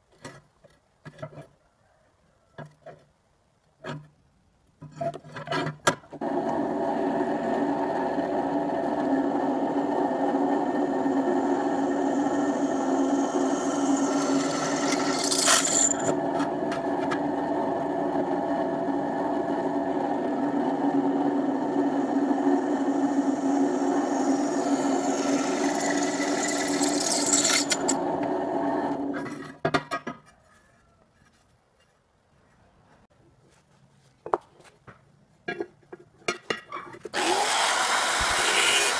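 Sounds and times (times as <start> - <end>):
drill press motor hum: 6.2 - 29.2, 37.2 - 38.9
bit grinding through steel: 9.8 - 17.8, 21.3 - 29.5, 37.1 - 38.9.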